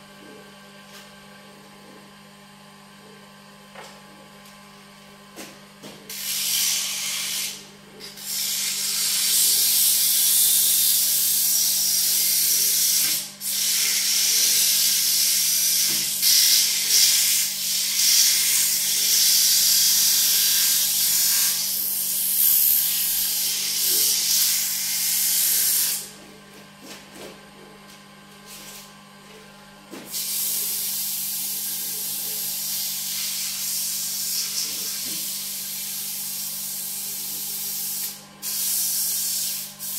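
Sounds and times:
tool hissing against spinning wood: 6.1s - 26.1s, 30.1s - 39.9s.

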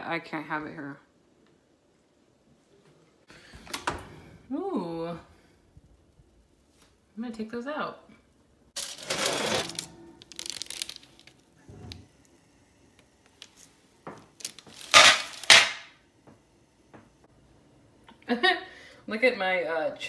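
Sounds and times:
metal baking sheet scraping: 8.8s - 11.0s.

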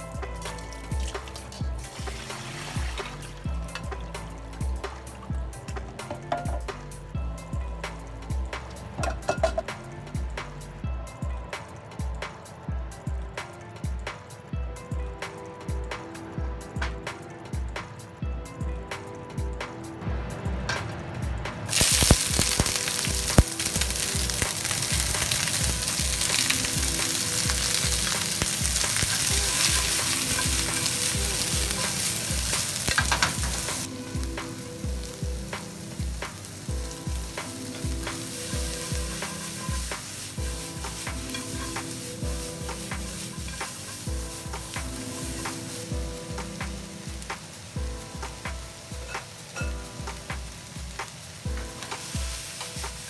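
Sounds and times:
onions sizzling in a skillet: 0.0s - 6.7s, 21.7s - 53.0s.

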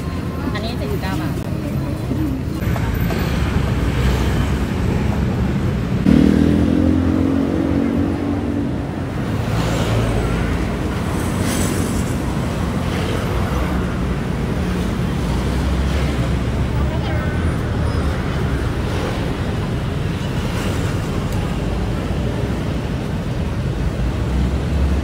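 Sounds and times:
road traffic rumble: 0.0s - 25.0s
vehicle engine passing loud: 5.9s - 12.6s.

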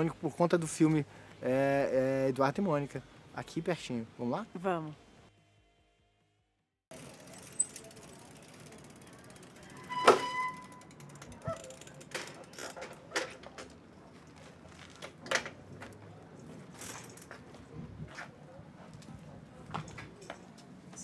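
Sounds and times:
bicycle freewheel clicks and creaks: 6.9s - 13.8s, 16.7s - 17.4s.

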